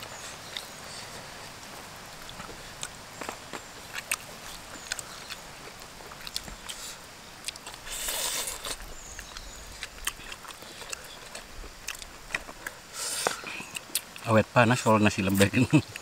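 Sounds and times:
chewing and lip smacking: 1.6s - 14.3s
short hiss of breath: 12.9s - 13.5s.

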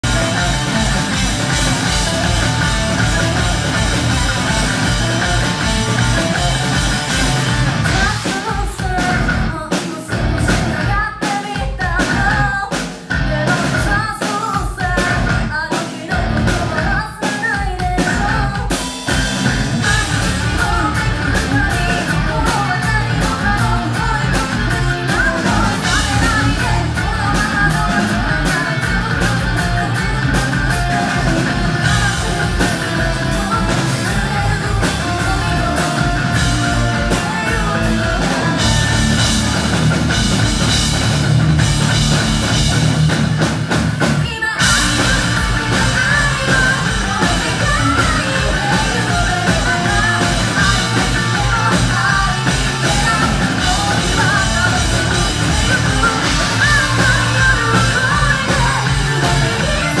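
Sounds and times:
woman singing lead vocal: 0.0s - 39.4s, 44.1s - 60.0s
hard rock band playing live: 0.0s - 60.0s.

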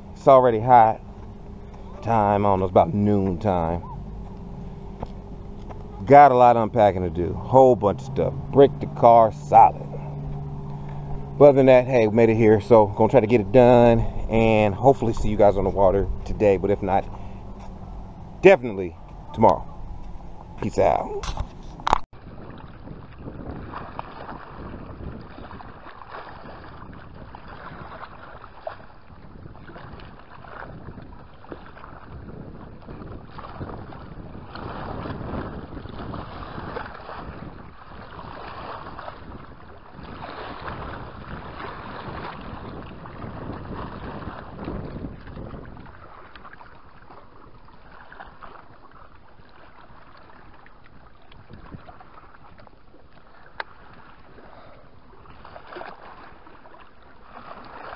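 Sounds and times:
wind buffeting microphone: 0.0s - 56.8s
small waves washing on rocks: 32.8s - 57.9s.

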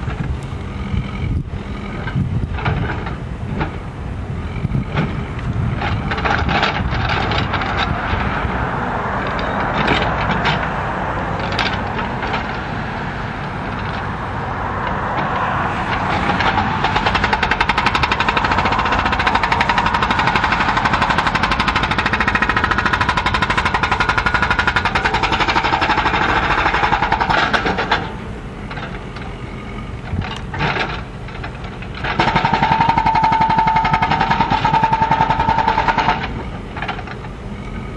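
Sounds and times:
diesel engine running: 0.0s - 37.9s
hydraulic hammer pounding concrete: 4.6s - 10.7s, 14.9s - 28.9s, 30.1s - 37.2s.

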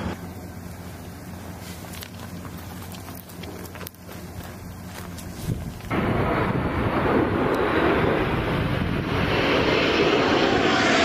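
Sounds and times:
military aircraft flying overhead: 5.9s - 11.0s.

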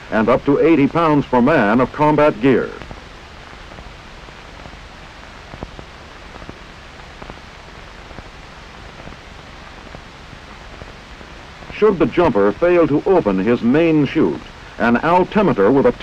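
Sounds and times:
film soundtrack hiss: 0.0s - 16.0s
faint clicks and pops: 2.7s - 11.8s.

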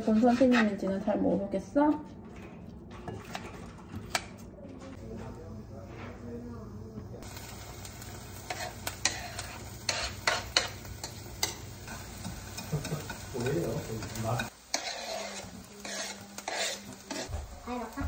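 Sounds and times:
knife scraping cutting board: 0.0s - 0.8s, 14.7s - 17.3s
onion sizzling in oil: 7.2s - 18.0s.

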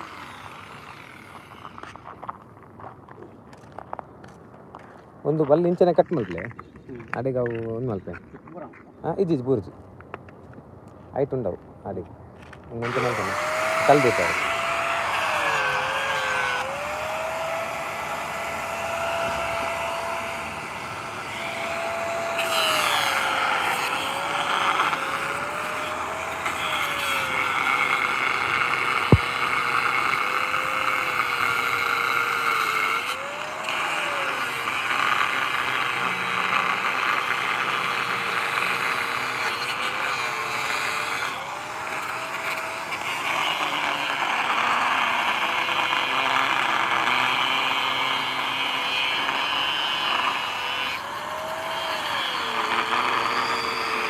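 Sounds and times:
angle grinder motor whine: 0.0s - 2.0s, 12.4s - 54.0s
grinding disc on metal: 12.8s - 54.0s.

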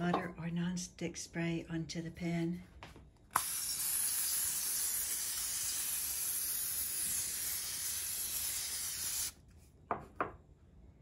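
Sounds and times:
aerosol spray hissing: 3.4s - 9.4s.

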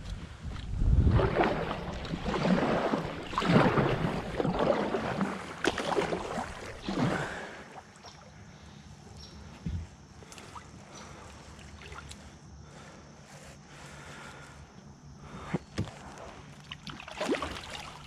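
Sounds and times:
kayak paddle splashing water: 0.8s - 8.6s, 15.4s - 18.0s.

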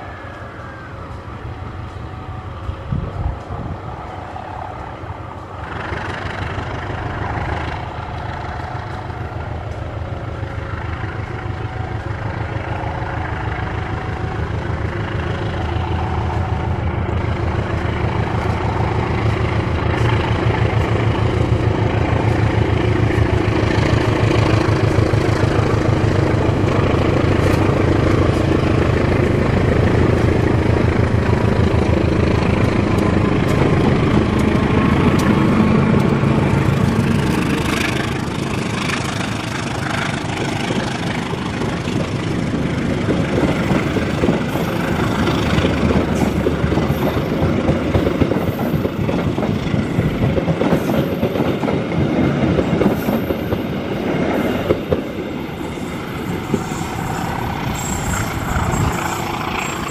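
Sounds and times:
diesel locomotive engine throbbing: 0.0s - 59.9s.

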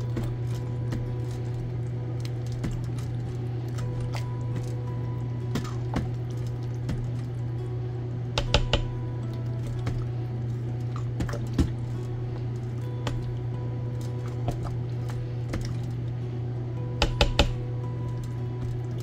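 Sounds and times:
steady low hum: 0.0s - 19.0s
utensil knocking against pot: 8.4s - 9.0s, 17.0s - 17.6s.

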